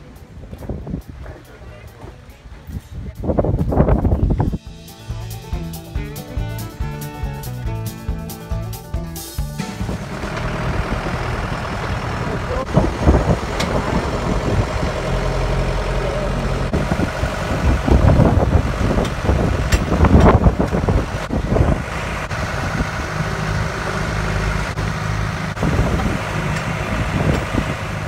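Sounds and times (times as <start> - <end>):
tractor engine droning: 3.7 - 28.0.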